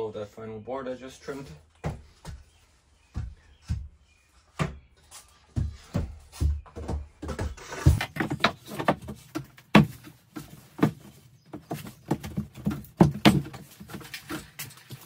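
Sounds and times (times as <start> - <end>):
knocks on wooden board: 6.8 - 10.1.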